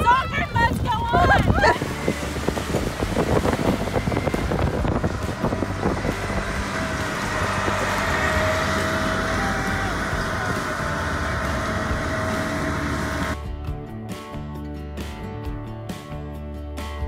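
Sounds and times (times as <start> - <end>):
wind buffeting microphone: 0.0 - 13.4
engine hum: 0.7 - 13.7
road noise on wet highway: 1.7 - 13.4.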